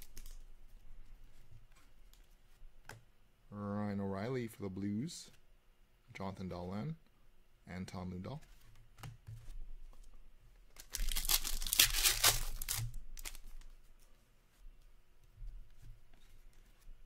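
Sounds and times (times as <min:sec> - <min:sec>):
faint wrapper rustles: 0:10.7 - 0:14.3
foil wrapper tearing open: 0:10.8 - 0:13.4.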